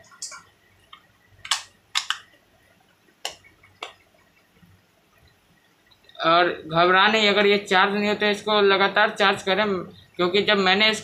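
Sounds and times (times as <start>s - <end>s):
plastic clicks and taps: 0.2s - 2.4s.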